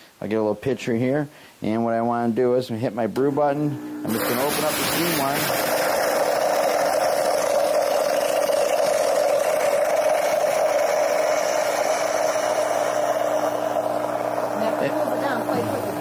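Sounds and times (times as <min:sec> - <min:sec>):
espresso machine pump running: 0:03.3 - 0:16.0.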